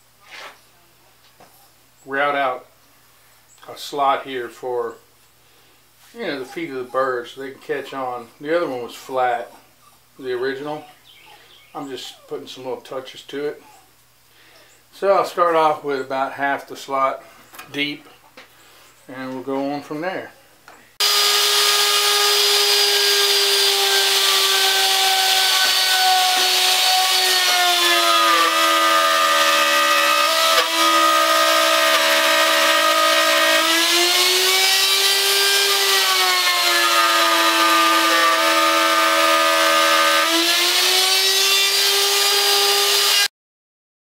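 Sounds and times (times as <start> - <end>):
router whining cutting wood: 21.0 - 43.3.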